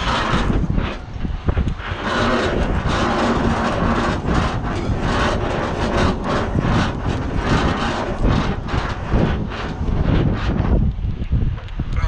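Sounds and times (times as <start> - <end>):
low steady rumble: 0.0 - 12.0
wind buffeting microphone: 0.0 - 12.0.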